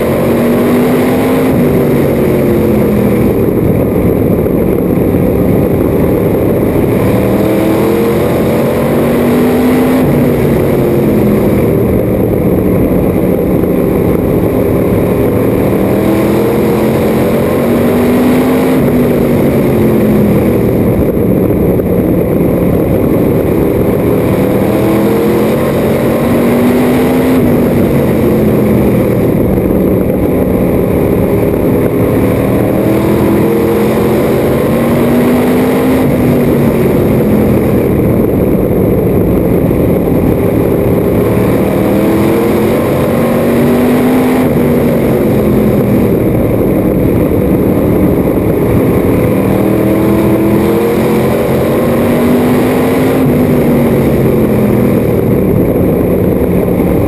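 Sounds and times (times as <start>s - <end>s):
race car engine: 0.0s - 57.0s
wind and road noise: 0.0s - 57.0s.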